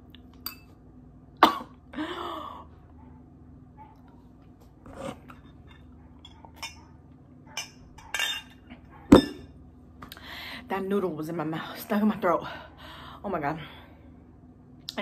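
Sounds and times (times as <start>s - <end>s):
woman coughing: 1.4s - 2.2s.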